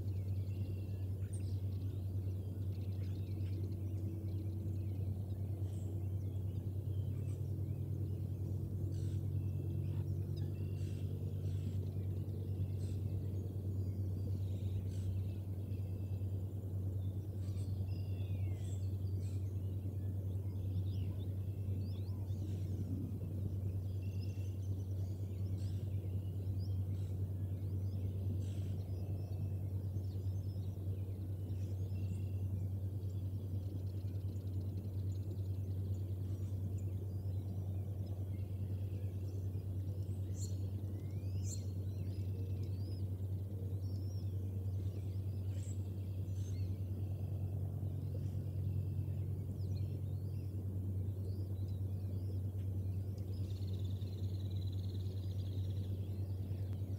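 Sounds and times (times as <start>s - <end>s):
steady low hum: 0.0s - 56.9s.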